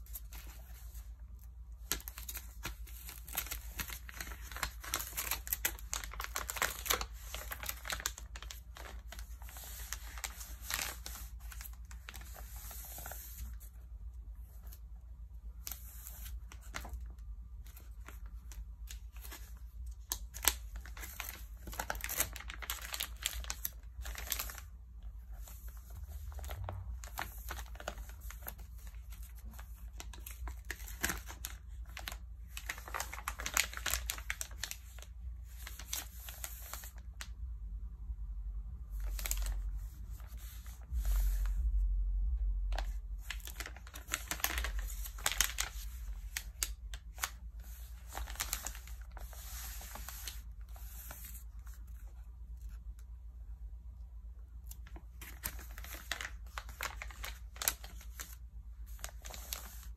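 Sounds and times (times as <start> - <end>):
magazine pages rustling: 0.0 - 14.9, 15.5 - 37.4, 38.9 - 41.8, 42.7 - 52.8, 54.7 - 59.9
low rumble: 40.8 - 43.4.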